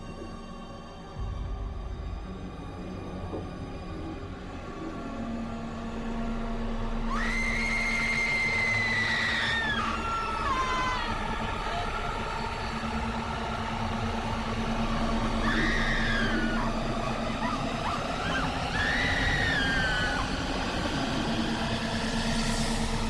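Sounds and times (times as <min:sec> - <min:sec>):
low rumbling drone: 0:00.0 - 0:23.0
long wailing tones: 0:07.0 - 0:22.8.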